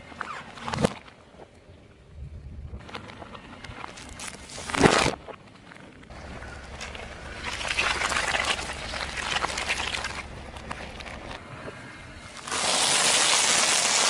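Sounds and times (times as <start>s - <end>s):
low rumble: 6.0s - 12.5s
tyre crunching food: 6.4s - 11.4s
plastic packaging crinkling: 6.6s - 11.4s.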